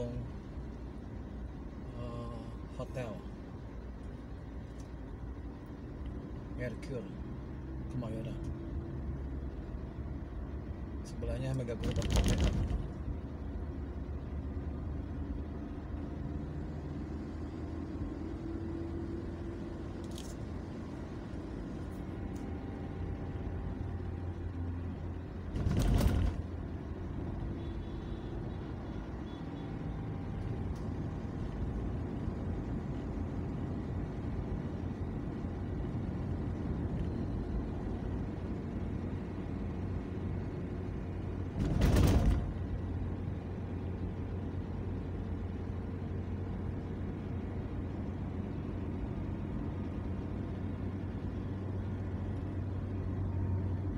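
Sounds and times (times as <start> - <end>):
car engine drone: 0.0 - 53.9
short bursts of noise: 11.8 - 13.0.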